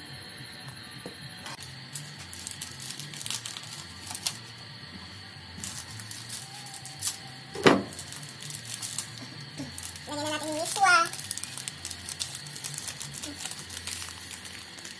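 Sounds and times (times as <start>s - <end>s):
soup heating with ticks and pops: 0.1s - 14.9s.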